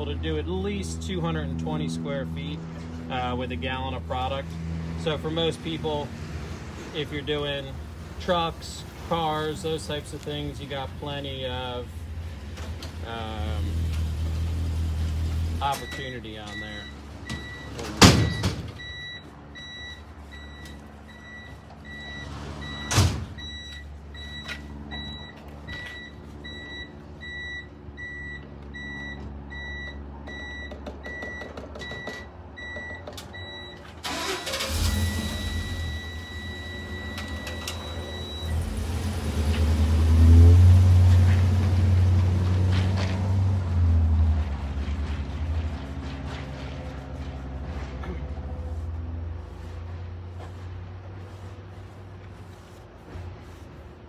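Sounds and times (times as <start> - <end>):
backup alarm beeping: 15.8 - 38.7.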